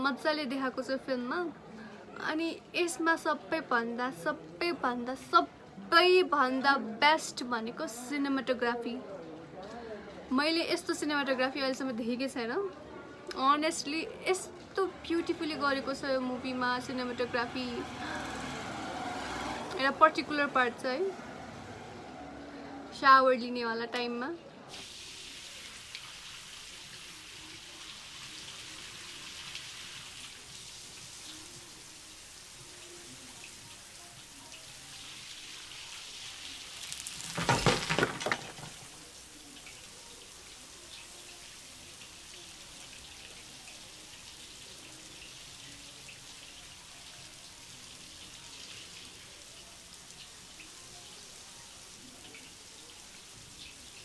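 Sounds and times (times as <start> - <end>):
shower water pattering: 24.7 - 54.0.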